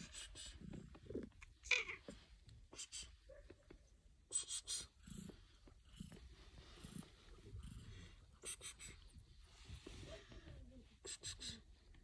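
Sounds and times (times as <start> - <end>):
soft low cat sounds: 0.0 - 12.0
cat sniffing: 4.3 - 11.8.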